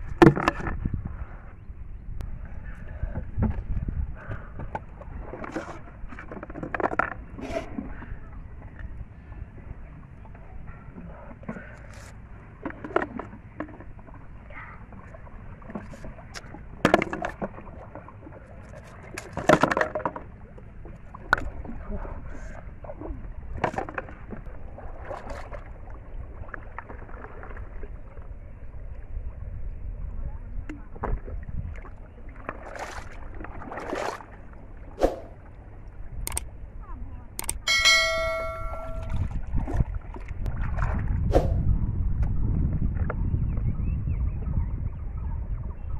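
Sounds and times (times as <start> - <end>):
water splashing and pouring: 32.5 - 34.4
light clicks: 36.3 - 36.5.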